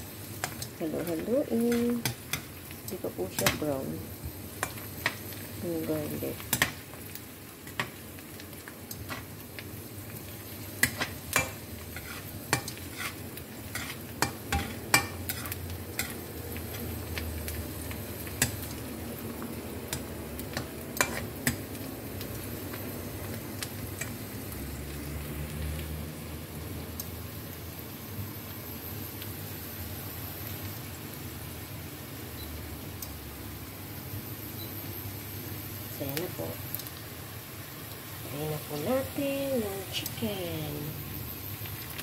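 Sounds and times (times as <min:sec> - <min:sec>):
onion and garlic sizzling: 0:00.0 - 0:42.0
metal spatula scraping pan: 0:11.4 - 0:16.2.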